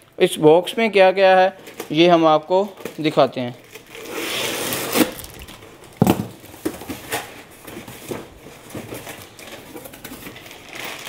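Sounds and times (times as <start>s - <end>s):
packing tape ripping: 3.6s - 7.4s, 9.2s - 11.0s
cardboard rustling and tapping: 6.0s - 10.5s.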